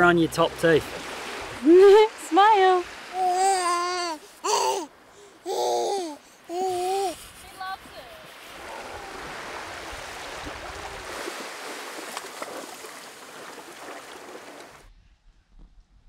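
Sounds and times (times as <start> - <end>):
small waves washing on sand: 0.0 - 14.9.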